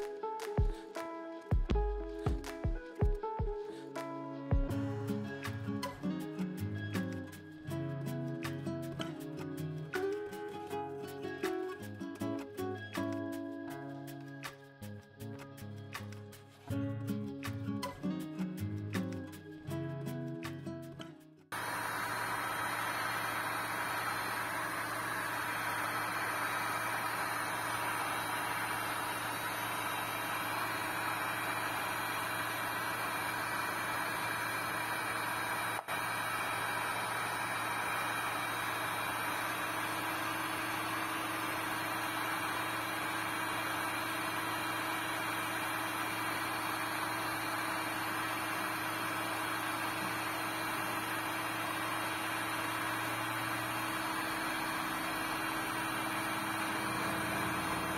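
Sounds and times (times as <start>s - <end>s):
heat gun fan blowing: 21.5s - 57.9s.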